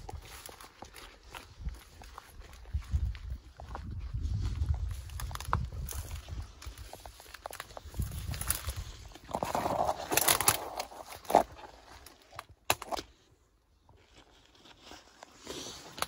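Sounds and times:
footsteps crunching through undergrowth: 0.0s - 12.6s, 13.8s - 16.0s
twigs cracking: 4.8s - 13.2s.

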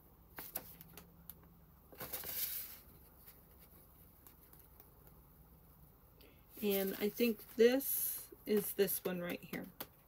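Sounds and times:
paper rustling: 0.3s - 1.0s, 1.9s - 4.9s.

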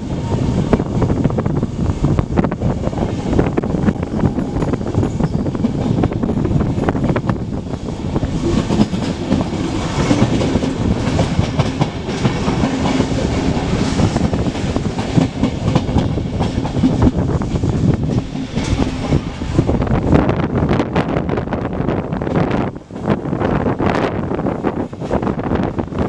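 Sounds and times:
train wheels clattering over rail joints: 3.6s - 19.4s.

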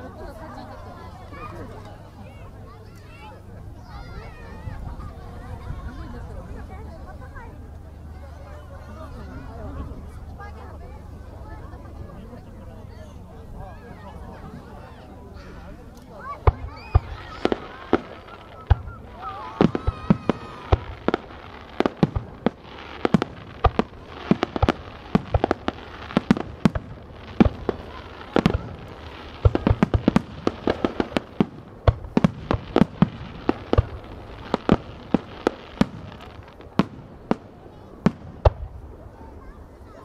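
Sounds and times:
fireworks bursting: 16.2s - 39.4s.

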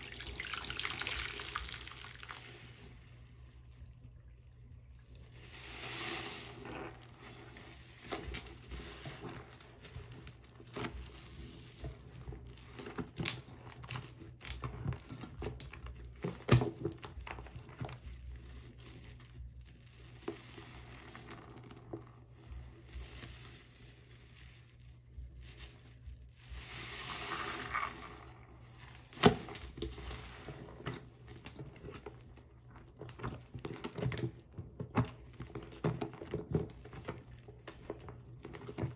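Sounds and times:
wet sponge squeezing and scrubbing: 0.0s - 4.0s, 5.0s - 8.0s, 17.9s - 29.2s.

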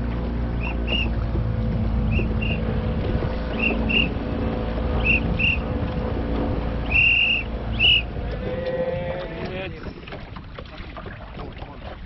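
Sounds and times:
boat moving on water: 0.0s - 12.0s
wind on microphone: 0.0s - 12.0s
shrill whistle blasts: 0.6s - 1.1s, 2.1s - 2.6s, 3.5s - 4.1s, 5.0s - 5.6s, 6.9s - 8.1s.

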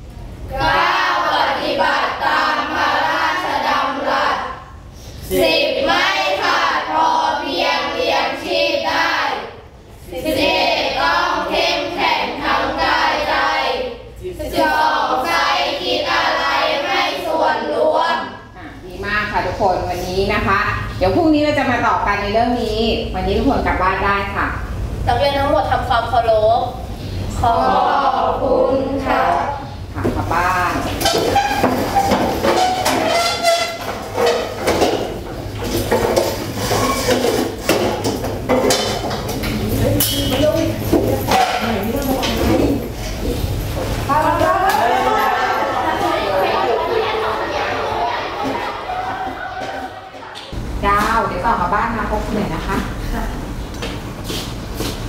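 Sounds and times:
children singing together: 0.5s - 18.5s, 44.8s - 50.5s
chairs and desks scraping: 30.8s - 44.2s, 44.8s - 50.6s.

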